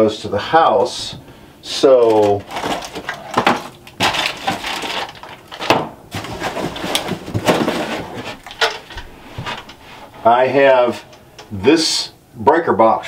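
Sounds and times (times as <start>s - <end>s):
packaging rustling: 2.0s - 10.1s.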